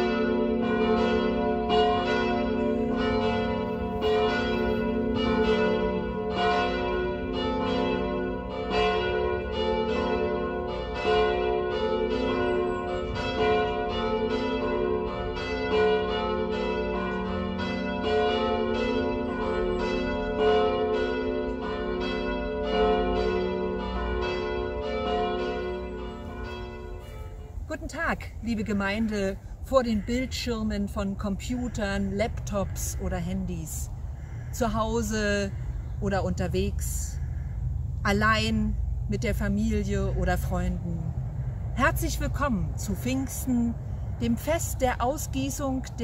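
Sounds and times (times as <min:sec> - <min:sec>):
church bells pealing: 0:00.0 - 0:27.9, 0:41.8 - 0:46.0.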